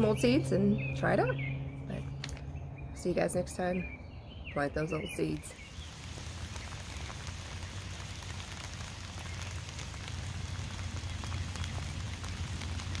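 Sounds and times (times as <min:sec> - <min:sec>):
raindrop ticks: 0:05.4 - 0:13.0
steady rain hiss: 0:05.4 - 0:13.0.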